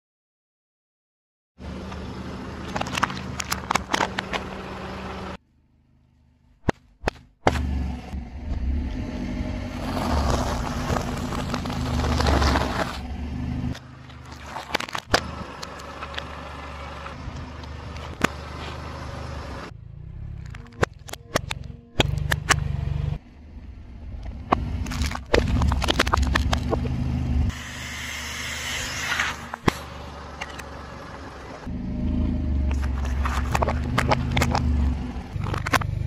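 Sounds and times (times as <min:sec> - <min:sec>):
car engine hum: 0:01.6 - 0:36.0
packaging crackling and popping: 0:02.7 - 0:04.4, 0:10.2 - 0:13.0, 0:14.0 - 0:16.2, 0:24.8 - 0:26.9.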